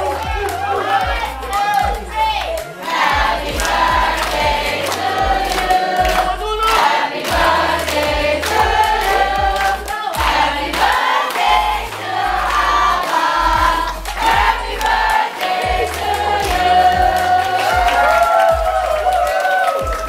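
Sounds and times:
music with singing and bass: 0.0s - 20.0s.

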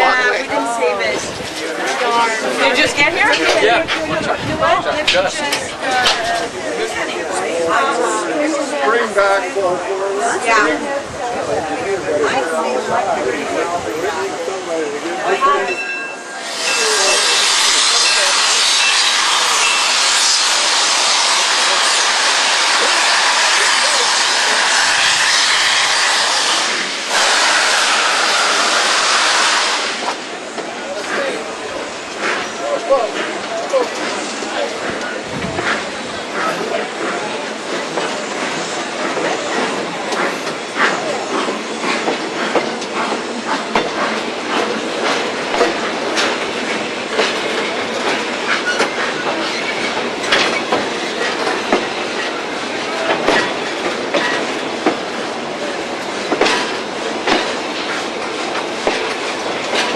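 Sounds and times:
railway car wheels clattering on rails: 0.0s - 9.9s, 10.6s - 59.9s
steam locomotive venting steam: 16.3s - 59.9s.

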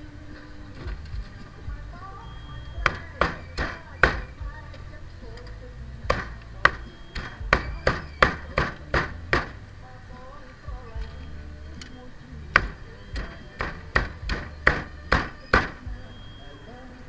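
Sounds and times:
faint background music: 0.0s - 17.0s
cleaver chopping on a block: 2.8s - 4.3s, 6.1s - 9.6s, 12.6s - 15.8s.

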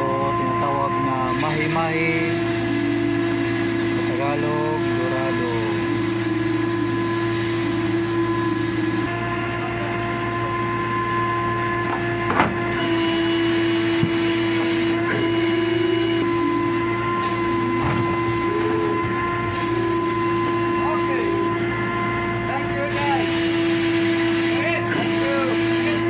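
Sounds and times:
machinery droning: 0.0s - 26.0s.

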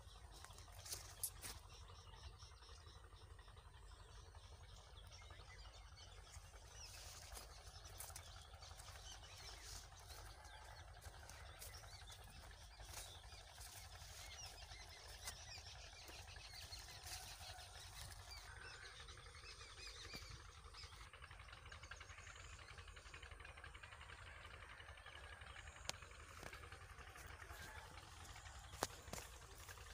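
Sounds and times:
small birds chirping: 0.0s - 23.0s, 26.4s - 29.9s
steady low rumble: 0.0s - 29.9s.

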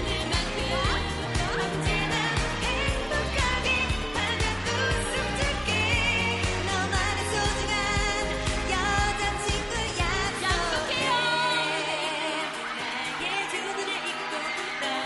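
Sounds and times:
backing track with bass and drums: 0.0s - 11.0s
girl group singing pop song: 0.0s - 15.0s.

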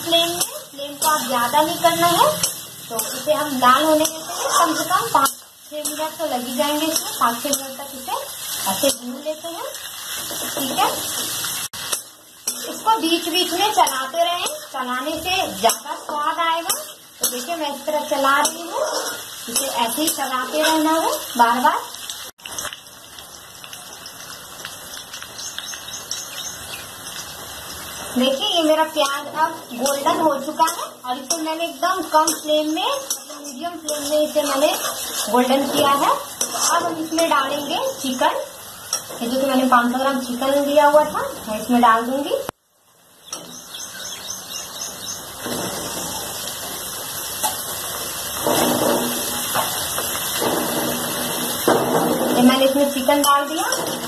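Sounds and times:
onions sizzling in oil: 0.0s - 54.0s
metal spatula scraping: 2.0s - 7.7s, 15.5s - 21.3s, 29.2s - 37.6s, 47.4s - 54.0s.

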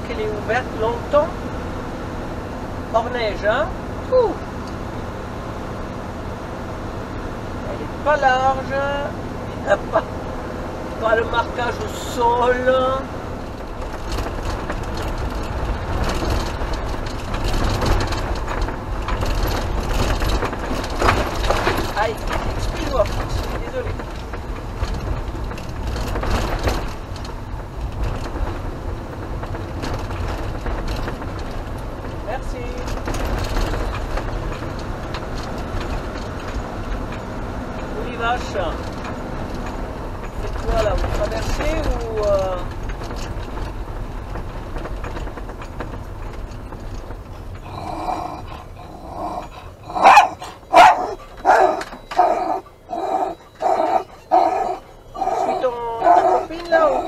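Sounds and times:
engine and road rumble: 0.0s - 57.0s
tyre noise on wet road: 0.0s - 57.0s
small rattles: 10.9s - 57.0s
dog barking: 49.9s - 56.5s.

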